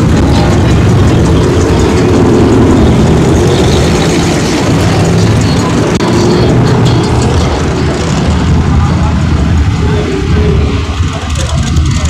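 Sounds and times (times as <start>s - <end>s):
car engine rumbling: 0.0s - 12.0s.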